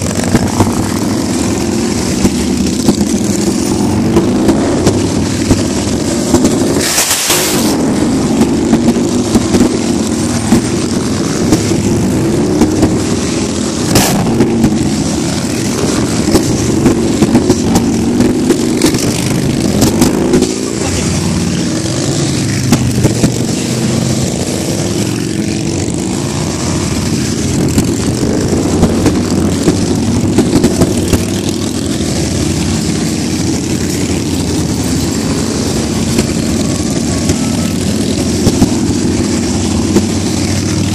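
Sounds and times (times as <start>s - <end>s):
motorcycle engines riding past: 0.0s - 40.9s
brief hiss: 6.8s - 7.7s.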